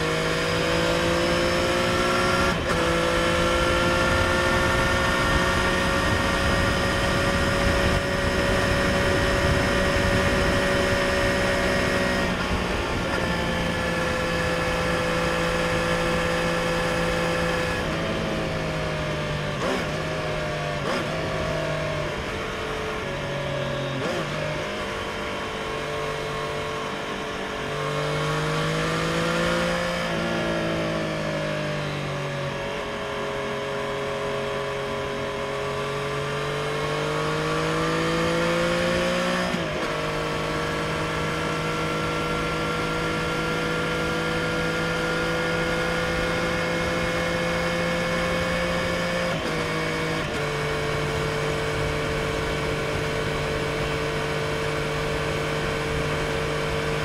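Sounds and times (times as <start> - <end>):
motorcycle engine revving: 0.0 - 57.0
wind noise: 1.7 - 20.0.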